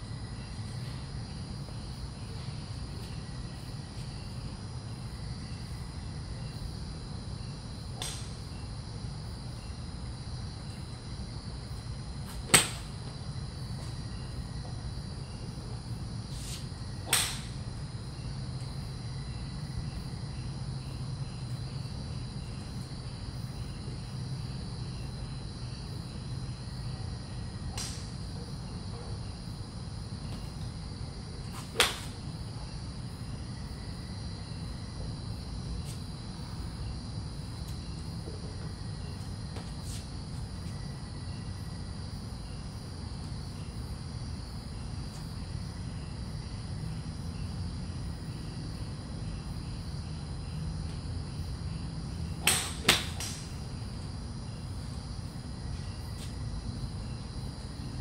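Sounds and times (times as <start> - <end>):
steady low hum: 0.0 - 58.0
golf club striking ball: 8.0 - 8.4, 12.5 - 12.9, 17.1 - 17.5, 31.8 - 32.1, 52.4 - 53.4.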